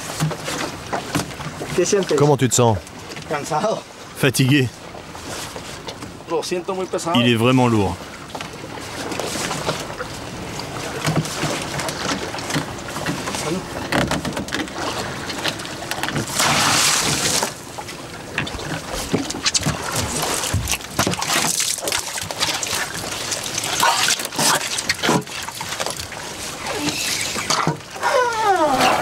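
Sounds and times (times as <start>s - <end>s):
water splashing and sloshing: 0.0s - 29.0s
knocks against a boat: 11.0s - 14.8s.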